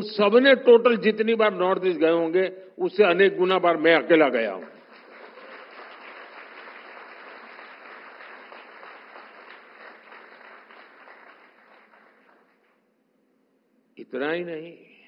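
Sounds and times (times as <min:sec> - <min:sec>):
large audience applauding: 0:04.6 - 0:12.8.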